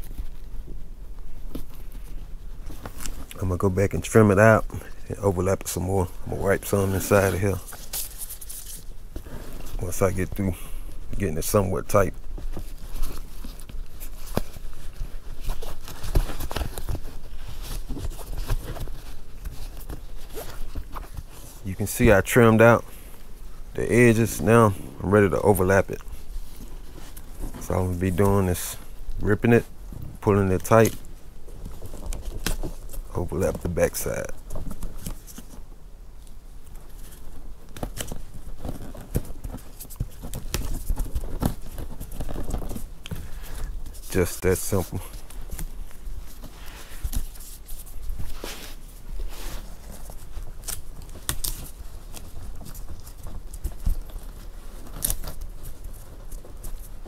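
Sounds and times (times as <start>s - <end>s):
hands rubbing fabric: 0.0s - 31.6s, 37.0s - 51.0s.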